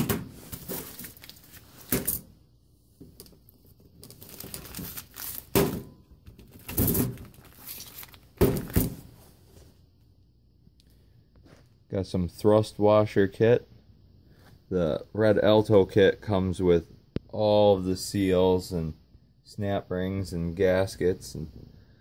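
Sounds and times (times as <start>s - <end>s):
plastic bags crinkling: 0.4s - 2.2s, 3.2s - 9.0s.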